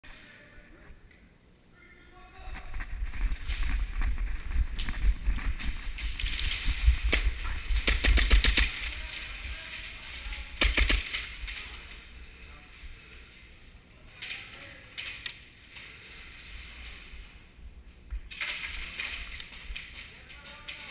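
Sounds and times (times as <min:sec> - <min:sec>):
low rumbling noise: 0:00.0 - 0:14.1
airsoft gunshots: 0:07.0 - 0:09.0, 0:10.5 - 0:11.7.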